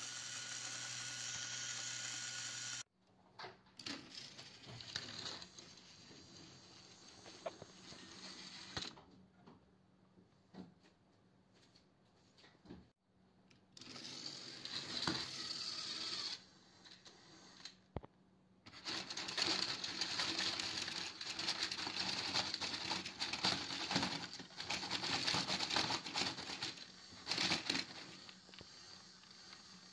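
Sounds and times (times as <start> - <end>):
toy train motors whirring: 0.0 - 2.9, 3.8 - 9.0, 13.8 - 17.9, 18.7 - 29.9.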